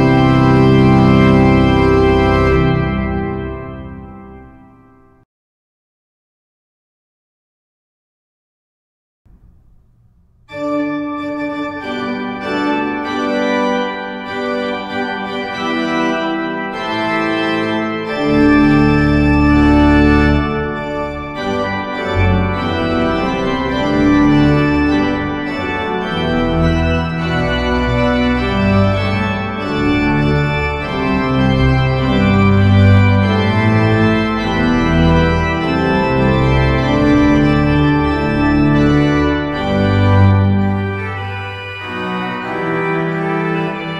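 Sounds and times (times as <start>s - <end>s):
deep organ pedal bass notes: 0.0s - 5.2s, 9.3s - 43.9s
pipe organ march chords: 0.0s - 5.2s, 9.3s - 43.9s.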